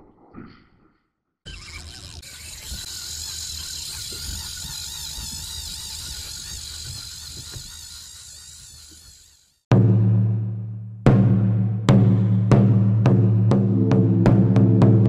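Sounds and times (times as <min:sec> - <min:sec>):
insects chirring: 0:01.5 - 0:09.6.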